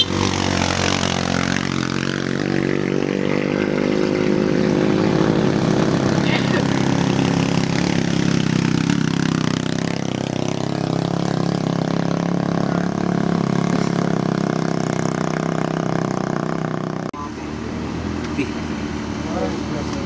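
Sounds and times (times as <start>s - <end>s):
motorcycle engines climbing: 0.0s - 20.0s.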